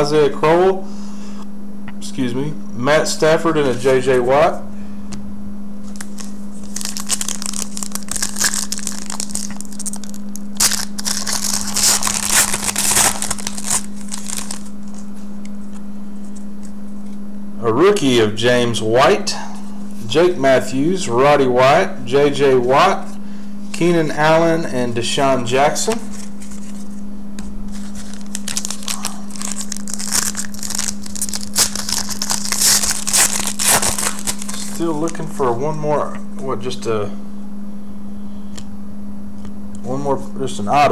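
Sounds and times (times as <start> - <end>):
steady low hum: 0.0 - 40.9
wrapper tearing and crinkling: 5.8 - 15.0, 27.7 - 35.3.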